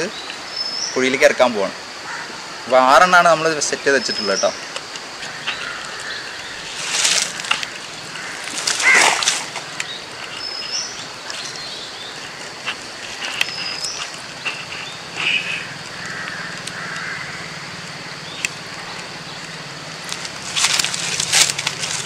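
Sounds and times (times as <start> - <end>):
birds chirping: 0.0 - 22.0
steady faint hiss: 0.0 - 22.0
low distant hum: 4.1 - 22.0.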